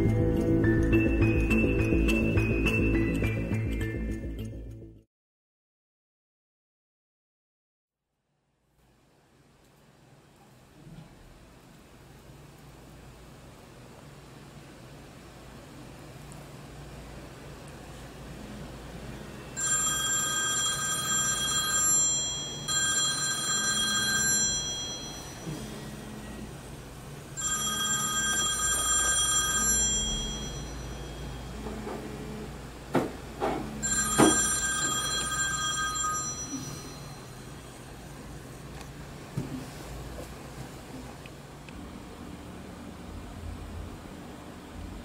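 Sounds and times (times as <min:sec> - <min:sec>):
telephone ringing electronically: 0:19.6 - 0:26.1, 0:27.3 - 0:32.0, 0:33.7 - 0:37.8.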